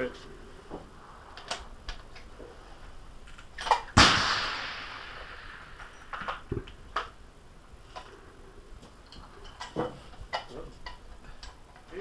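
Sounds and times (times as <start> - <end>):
rifle shot echoing: 3.8 - 6.5.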